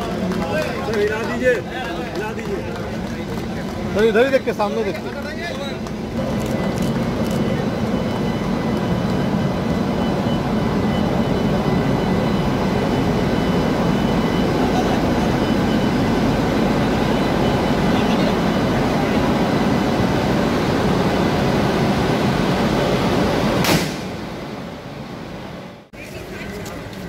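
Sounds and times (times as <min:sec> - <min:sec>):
electric locomotive rushing noise: 0:00.0 - 0:27.0
high whining tones: 0:04.0 - 0:23.6.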